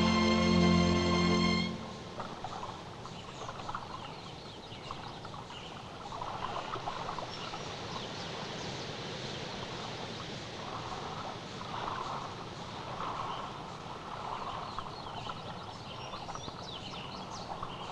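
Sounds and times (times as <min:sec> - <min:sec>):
steady hiss: 0:05.8 - 0:17.9.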